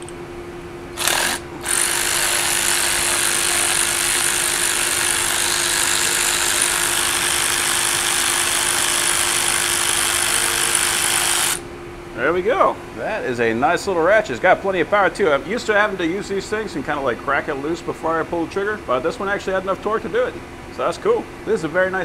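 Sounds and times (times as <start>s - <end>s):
electric ratchet wrench running: 1.0s - 11.6s.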